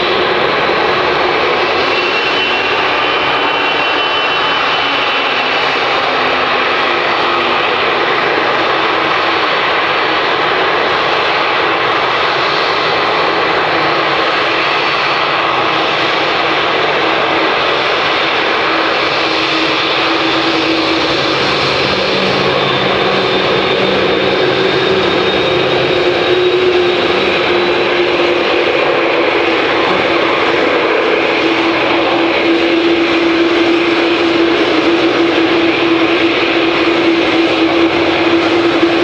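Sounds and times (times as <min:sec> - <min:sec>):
jet engines at taxi power: 0:00.0 - 0:39.0.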